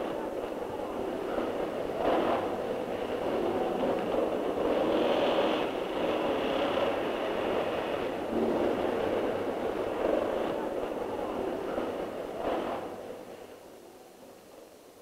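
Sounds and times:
factory machinery rattling: 0.0s - 13.5s.

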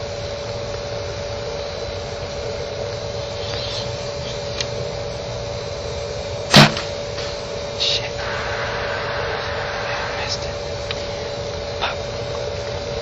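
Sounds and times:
steady hum: 0.0s - 13.0s
sharp knock: 6.5s - 6.9s.

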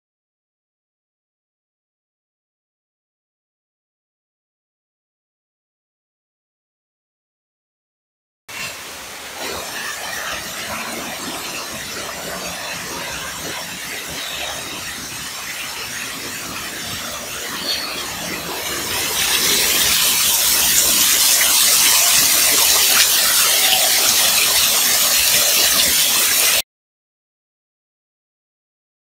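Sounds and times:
waterfall splashing: 8.5s - 26.6s.

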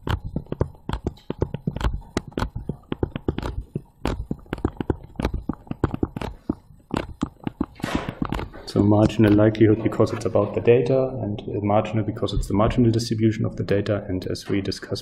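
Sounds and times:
stylus tapping on tablet screen: 0.0s - 9.5s.

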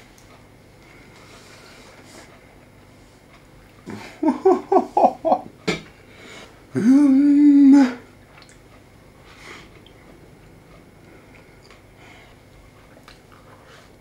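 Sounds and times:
man humming mmm: 6.7s - 8.1s.

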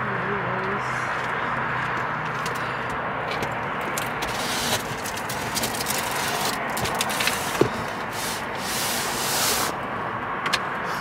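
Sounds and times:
wooden slats scraping cardboard: 4.2s - 4.9s, 6.1s - 9.8s.

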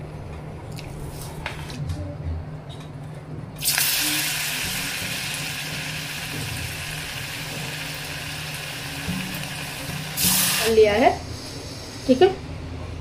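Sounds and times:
food sizzling in hot oil: 3.6s - 11.2s.

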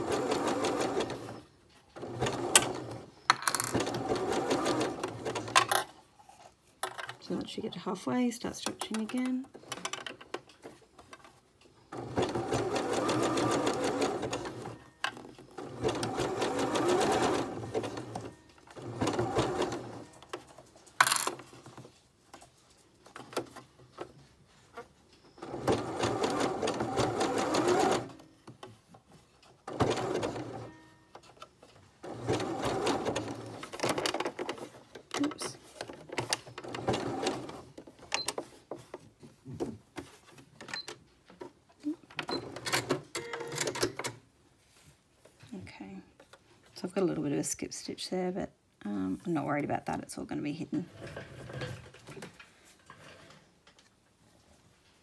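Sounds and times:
sewing machine stitching: 0.0s - 5.7s, 11.8s - 20.5s, 25.4s - 28.7s, 29.6s - 31.0s, 32.0s - 38.4s.

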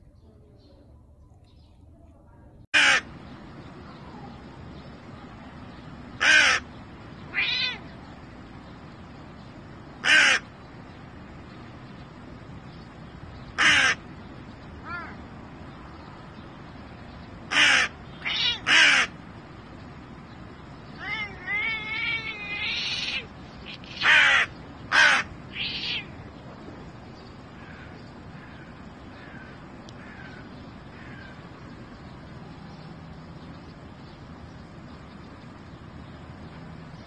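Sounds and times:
crow cawing: 2.8s - 3.1s, 6.2s - 6.7s, 10.0s - 10.5s, 13.6s - 14.0s, 17.5s - 19.2s, 21.0s - 26.1s, 27.6s - 31.4s.

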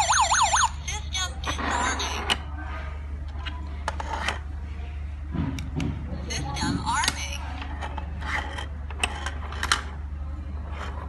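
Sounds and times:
alarm siren wailing: 0.0s - 0.7s.

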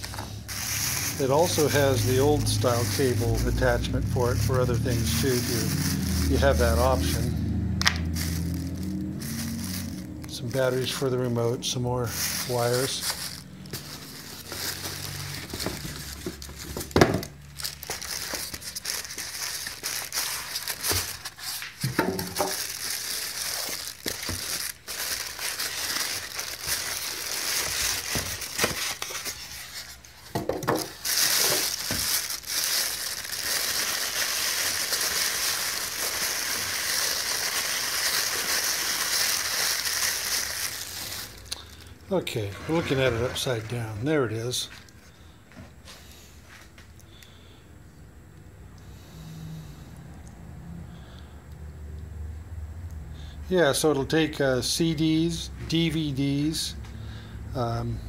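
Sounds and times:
styrofoam blocks rubbing: 0.0s - 7.3s, 17.7s - 41.4s
plastic bags crinkling: 0.0s - 44.0s.

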